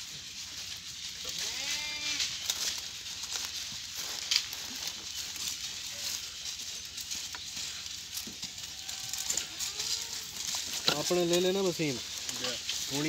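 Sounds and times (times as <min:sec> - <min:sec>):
dry straw crackling and rustling: 0:00.0 - 0:13.0.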